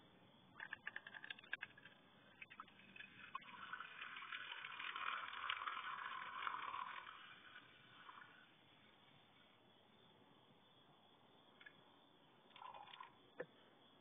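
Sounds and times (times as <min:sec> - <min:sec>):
sharp clicks: 0:00.5 - 0:03.1
juice trickling into container: 0:00.6 - 0:08.5, 0:12.5 - 0:13.2.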